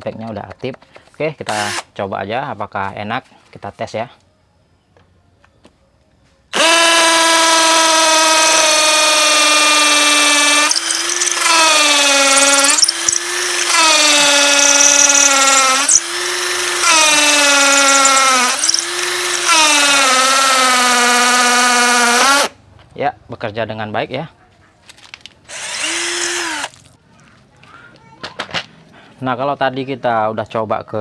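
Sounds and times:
impact drill boring into concrete: 0:06.6 - 0:22.5, 0:25.5 - 0:26.7.

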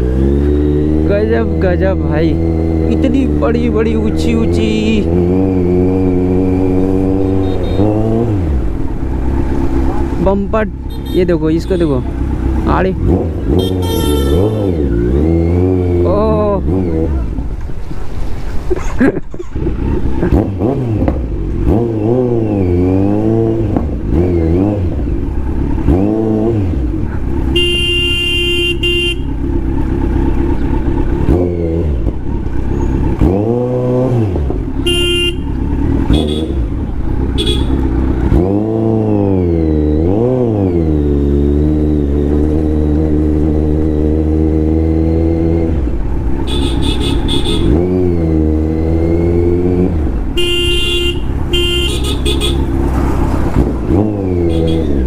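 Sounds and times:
motorcycle engine revving: 0:00.0 - 0:18.6, 0:19.4 - 0:55.0
vehicle horns honking: 0:07.2 - 0:08.2, 0:10.8 - 0:12.2, 0:13.5 - 0:14.9, 0:27.4 - 0:29.4, 0:34.8 - 0:36.7, 0:37.3 - 0:38.0, 0:46.4 - 0:47.8, 0:50.3 - 0:52.8, 0:54.4 - 0:55.0.

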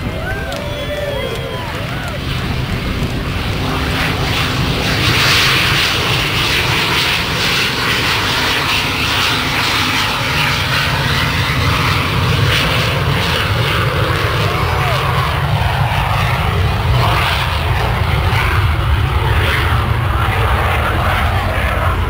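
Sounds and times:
jet engines running loud: 0:00.0 - 0:22.0.

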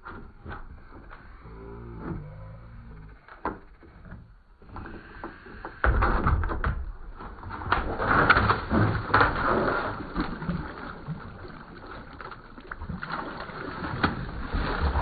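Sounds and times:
dog thrashing in water: 0:06.0 - 0:15.0
water splashing: 0:07.0 - 0:15.0.

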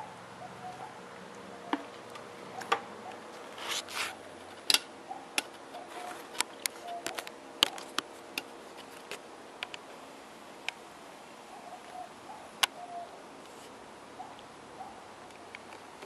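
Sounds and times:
brief rustle: 0:02.6 - 0:04.8, 0:05.4 - 0:08.1.

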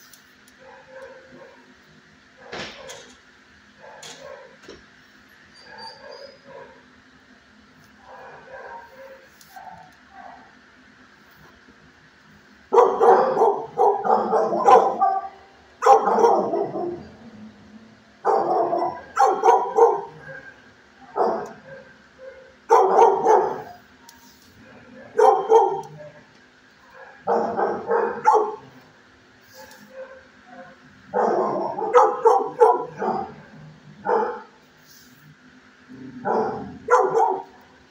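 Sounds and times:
faint steady hum: 0:00.0 - 0:37.9
dogs barking: 0:00.6 - 0:01.8, 0:03.7 - 0:04.8, 0:05.6 - 0:06.9, 0:08.0 - 0:10.6, 0:12.7 - 0:17.2, 0:18.2 - 0:23.8, 0:24.6 - 0:34.6, 0:36.0 - 0:37.7.

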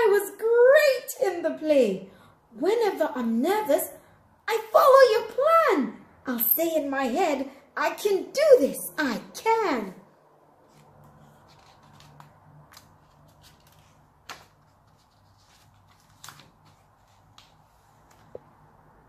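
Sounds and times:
paper pages rustling: 0:10.6 - 0:18.6.

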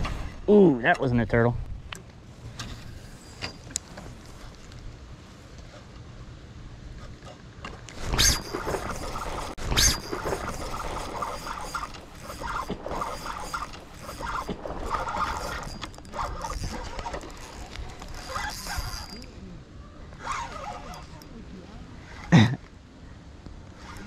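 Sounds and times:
spinning reel gears whirring: 0:08.0 - 0:19.3.

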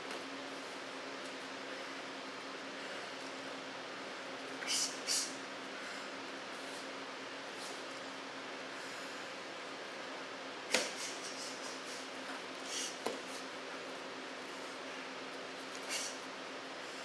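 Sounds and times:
room hum: 0:00.0 - 0:17.0
short hissing bursts: 0:04.6 - 0:05.4
sharp snap: 0:10.7 - 0:11.7.

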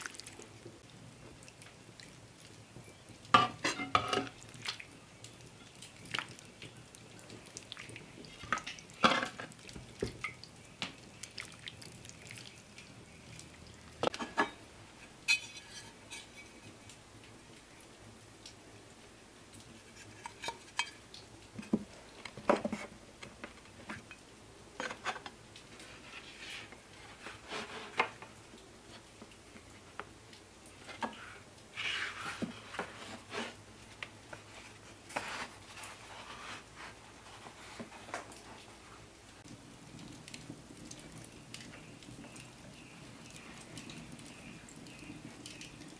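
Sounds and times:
rustling of pastry dough: 0:00.0 - 0:14.1, 0:24.8 - 0:30.2, 0:30.8 - 0:45.9.

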